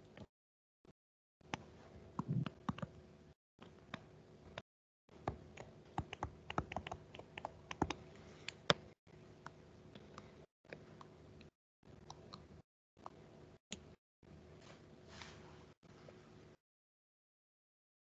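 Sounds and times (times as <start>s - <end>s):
stylus clicking on tablet screen: 5.2s - 13.2s.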